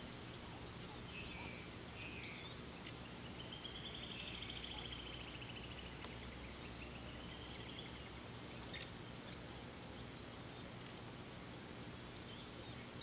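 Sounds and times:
low steady hum: 0:00.0 - 0:13.0
bird trilling: 0:00.4 - 0:09.0.

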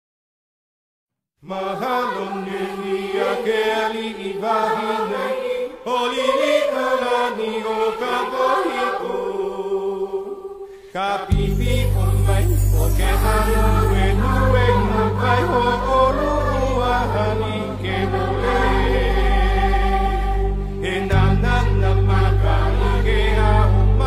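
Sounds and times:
voices chanting: 0:01.5 - 0:24.0
loud low bass: 0:11.4 - 0:24.0.

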